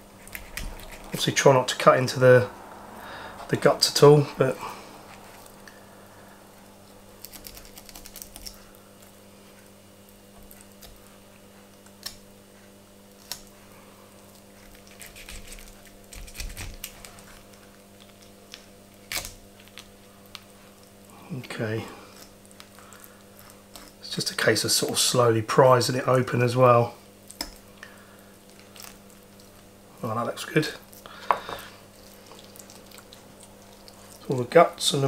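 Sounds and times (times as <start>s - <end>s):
low hum: 0.0s - 23.9s.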